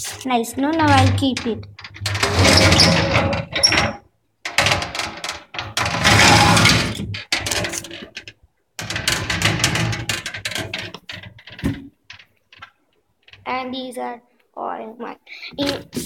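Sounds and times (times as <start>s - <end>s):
cabinet glass door scraping: 0.0s - 4.0s, 4.6s - 8.2s.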